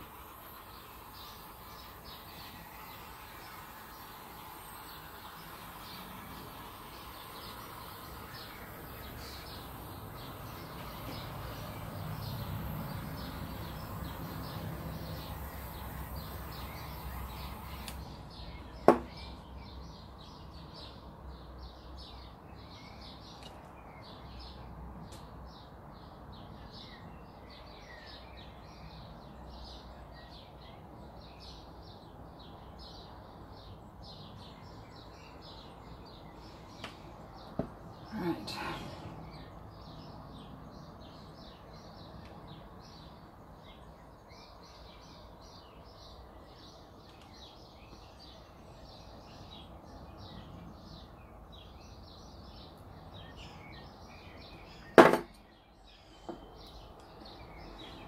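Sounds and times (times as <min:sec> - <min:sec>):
butane torch hissing: 0:00.0 - 0:19.4
birds chirping: 0:00.0 - 0:58.0
sharp knock: 0:18.8 - 0:19.2, 0:55.0 - 0:55.4.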